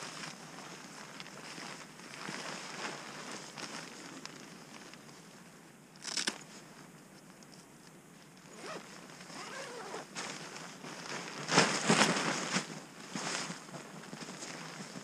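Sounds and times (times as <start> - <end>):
fabric rustling: 0.0 - 6.8, 8.2 - 15.0
zipper being pulled: 8.5 - 10.1.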